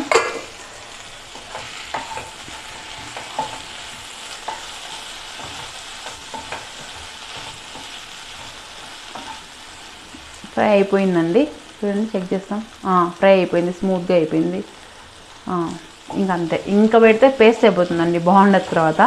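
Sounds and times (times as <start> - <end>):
vegetables sizzling in a pan: 0.0 - 19.0
spatula knocking and scraping pan: 1.3 - 9.5.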